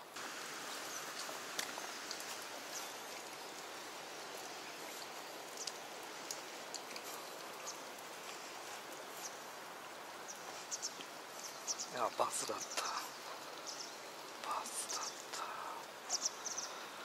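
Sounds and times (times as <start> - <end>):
faint high ticks: 5.0 - 8.4.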